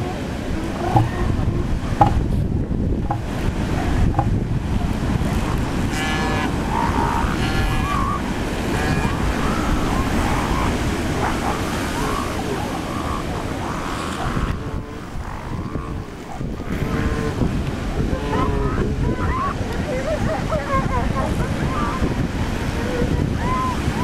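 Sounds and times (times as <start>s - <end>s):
ocean surf breaking: 0.0s - 24.0s
wind on the microphone: 0.0s - 24.0s
faint pitched calls: 5.9s - 17.5s.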